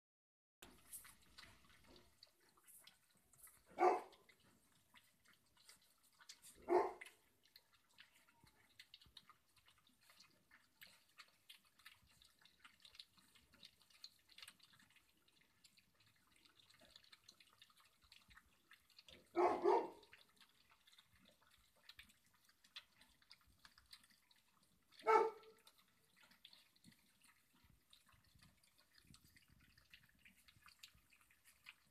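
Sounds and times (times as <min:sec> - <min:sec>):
puppies eating from metal bowl: 0:00.6 - 0:31.9
puppy yelping: 0:19.4 - 0:20.0, 0:25.0 - 0:25.6.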